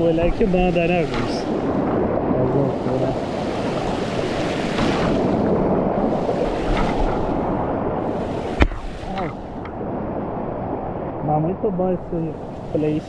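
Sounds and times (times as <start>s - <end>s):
sharp knock: 8.5s - 9.3s.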